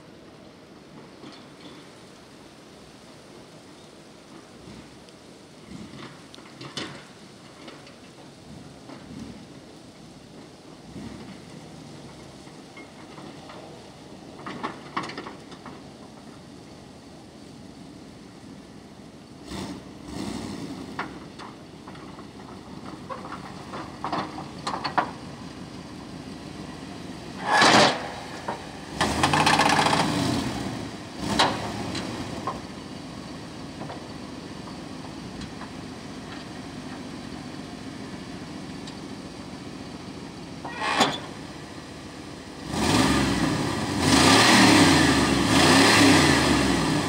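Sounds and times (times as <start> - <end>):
truck engine running low: 0.0 - 47.0.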